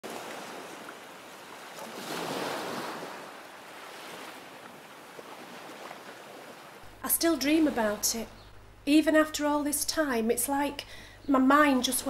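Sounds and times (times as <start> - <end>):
small surf washing in: 0.0 - 6.8.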